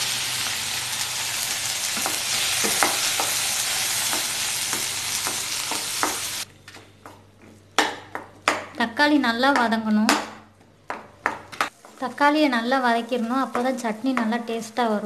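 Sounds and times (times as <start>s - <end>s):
tomatoes sizzling in oil: 0.0s - 6.5s
wooden spatula knocking pan: 2.0s - 3.4s.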